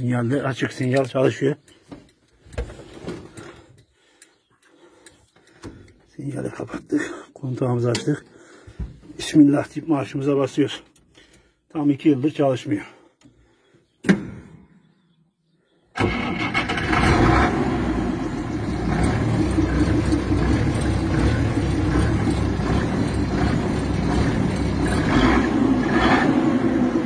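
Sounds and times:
truck engine starting and running: 16.0s - 27.0s.

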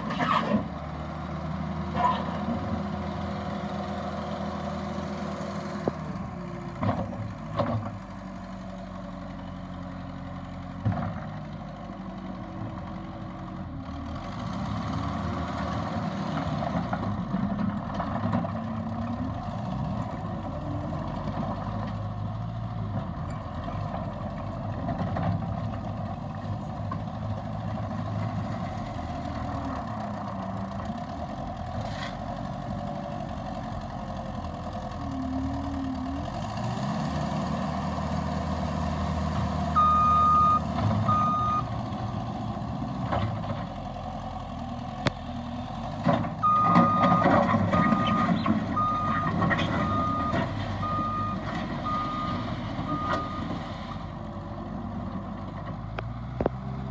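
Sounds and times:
diesel engine running: 0.0s - 56.9s.

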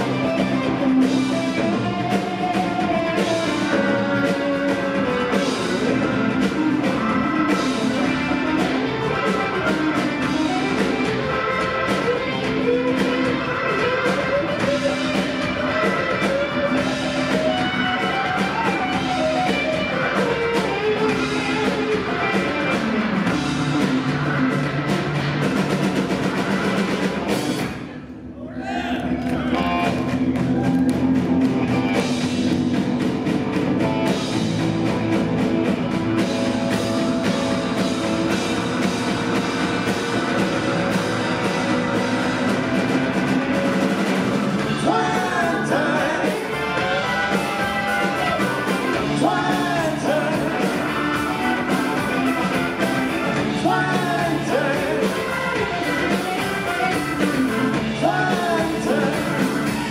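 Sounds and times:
drum kit: 0.0s - 28.2s, 29.1s - 59.9s
bass guitar: 0.0s - 59.9s
electric guitar: 0.0s - 59.9s
man singing lead vocal: 44.6s - 52.3s, 53.1s - 56.3s, 56.9s - 59.9s.

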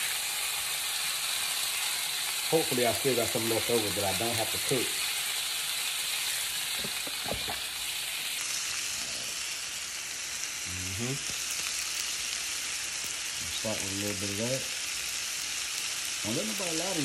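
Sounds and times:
chicken sizzling in a skillet: 0.0s - 17.0s.

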